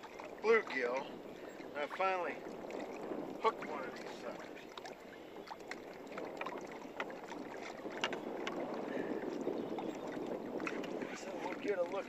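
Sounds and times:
water lapping against boat hull: 0.0 - 12.0
clicks and knocks in boat: 2.7 - 12.0.

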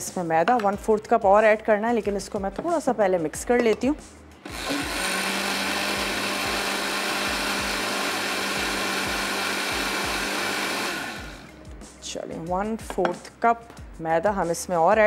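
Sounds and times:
electric blender running: 4.4 - 11.6.

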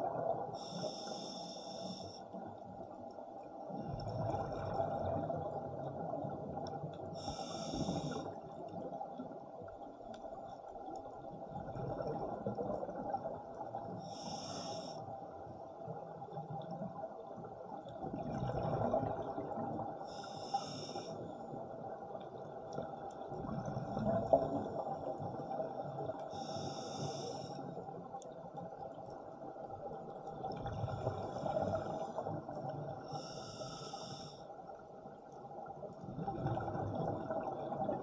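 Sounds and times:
regulator hiss: 0.6 - 2.2, 7.2 - 8.2, 14.1 - 15.0, 20.2 - 21.2, 26.4 - 27.6, 33.1 - 34.4
bubbling rumble of exhaled air: 3.7 - 8.8, 11.5 - 13.8, 17.9 - 20.0, 35.9 - 38.0.

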